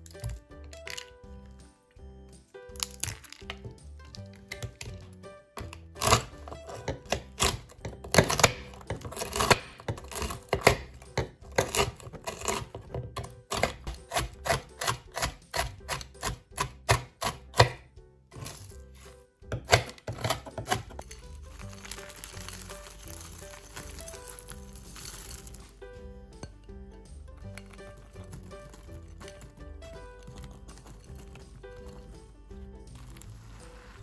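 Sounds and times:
background music: 0.0 - 34.0
food preparation knocks: 19.5 - 21.2.

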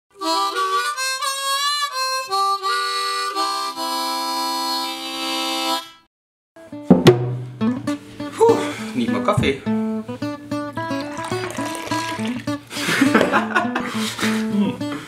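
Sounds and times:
harmonica playing: 0.1 - 6.1, 9.6 - 15.0.

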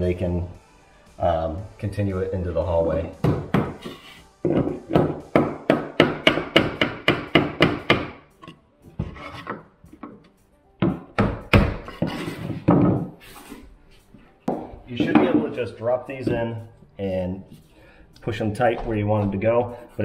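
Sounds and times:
hammer knocking wooden plank: 4.5 - 8.1, 14.5 - 15.5.

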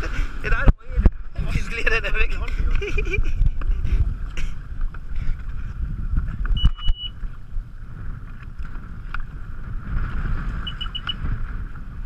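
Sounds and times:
rumble of wind and water: 0.0 - 12.0
high electronic beep: 6.6 - 7.2, 10.6 - 11.2.

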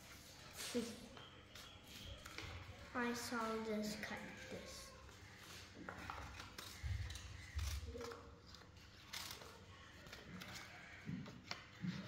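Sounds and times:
scissors snipping paper: 5.9 - 12.0.

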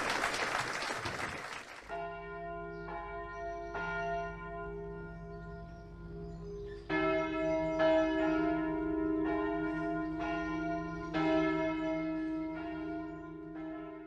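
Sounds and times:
church bells ringing: 1.9 - 14.0.

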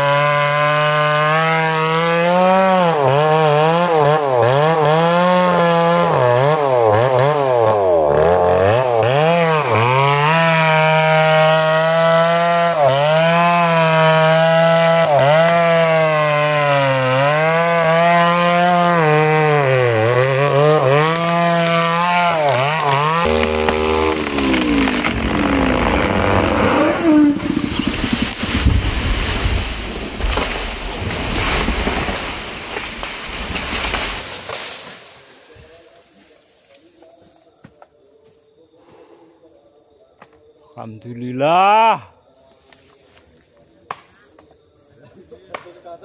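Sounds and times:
chainsaw cutting wood: 0.0 - 35.6
tree trunk cracking: 19.2 - 35.6.

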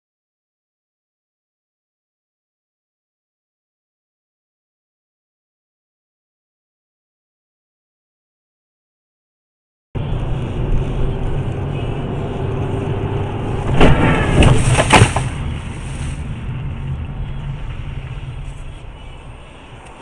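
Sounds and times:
engine and road rumble: 10.0 - 20.0
car collision bangs and squeals: 13.6 - 15.5.

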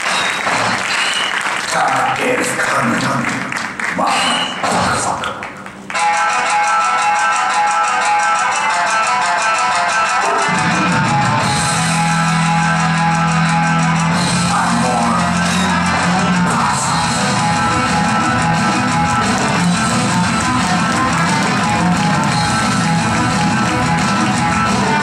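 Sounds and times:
rock music: 6.0 - 25.0.

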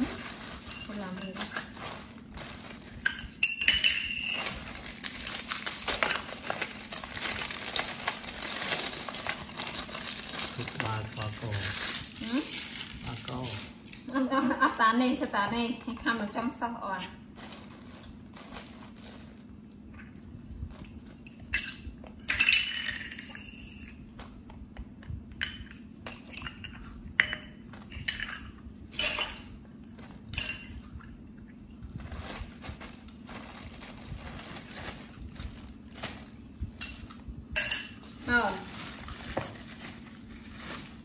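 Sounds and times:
dishes and utensils clinking: 3.0 - 4.5.

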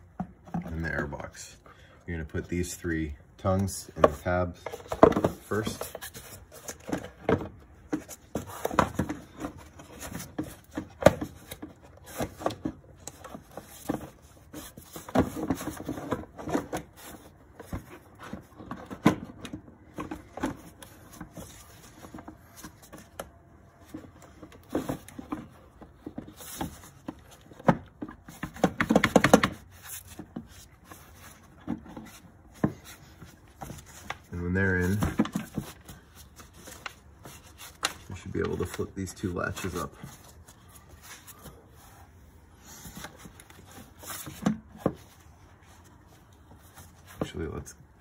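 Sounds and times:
plastic knocking and scraping: 3.9 - 38.8.

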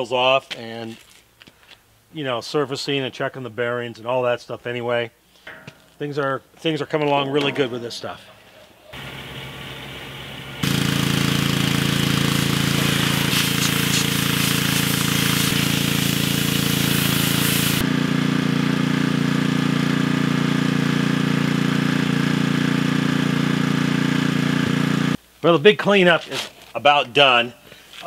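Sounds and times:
pressure washer engine running: 9.0 - 25.2
spray wand hissing on metal drum: 10.6 - 17.9.

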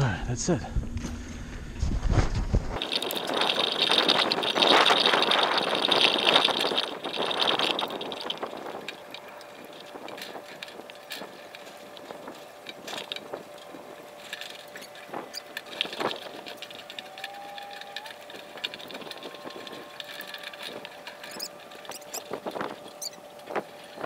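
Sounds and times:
drawn-out squeak: 14.2 - 24.0.

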